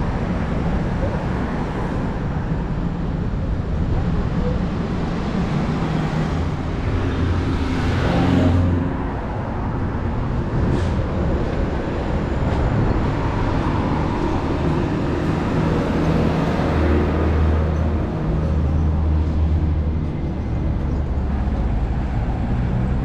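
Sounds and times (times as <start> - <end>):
traffic engines humming: 0.0 - 23.0.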